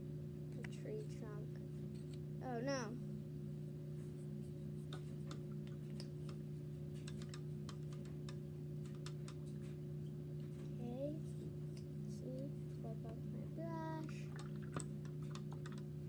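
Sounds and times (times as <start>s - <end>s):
steady low hum: 0.0s - 16.0s
paintbrush and paint pots clicking: 14.3s - 15.9s.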